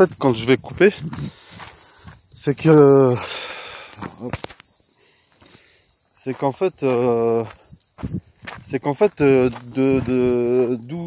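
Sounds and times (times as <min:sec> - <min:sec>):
man's drawn-out voice: 0:00.0 - 0:01.3, 0:08.7 - 0:11.0
insects chirring: 0:00.0 - 0:11.0.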